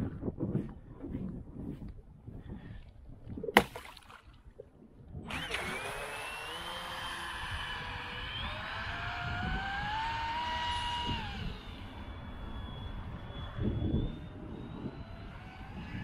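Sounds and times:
wind noise gust: 0.0 - 3.6
rc boat motor whining: 5.2 - 16.0.

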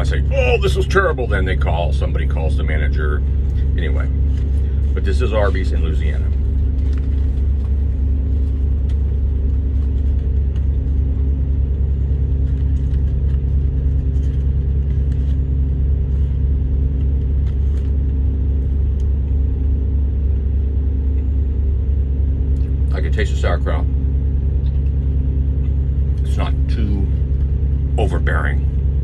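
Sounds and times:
vehicle engine idling: 0.0 - 29.0
paper wrapper rustling: 12.3 - 16.4.

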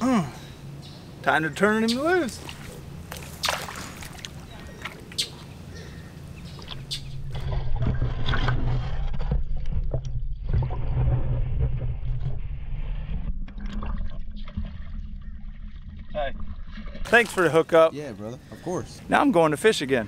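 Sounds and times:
water sloshing and splashing: 2.3 - 5.6, 6.4 - 12.5, 13.2 - 17.7
muffled underwater rumble: 6.6 - 17.2.

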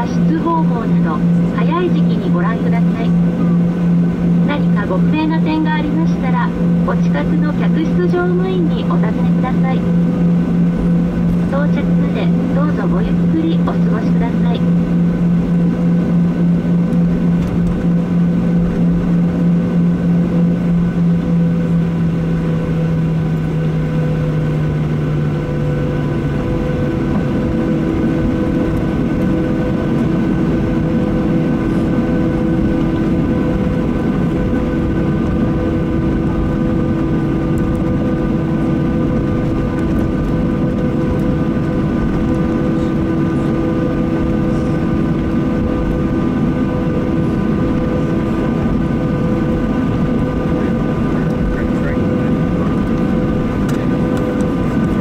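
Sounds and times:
jet engines humming: 0.0 - 55.0.

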